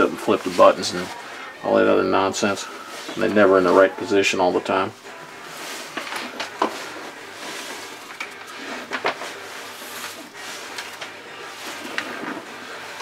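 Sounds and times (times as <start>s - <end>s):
wire sheathing rustling: 0.0s - 13.0s.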